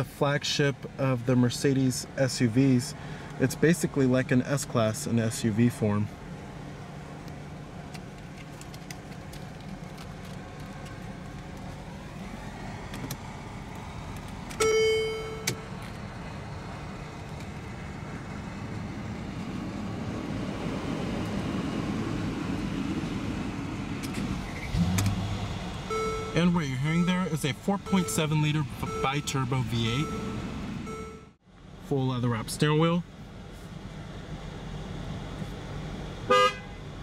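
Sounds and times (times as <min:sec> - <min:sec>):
car engine idling: 0:21.9 - 0:37.0.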